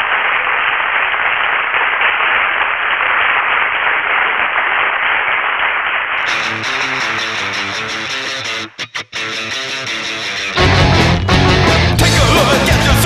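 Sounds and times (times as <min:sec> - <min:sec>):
audience applause: 0:00.0 - 0:08.7.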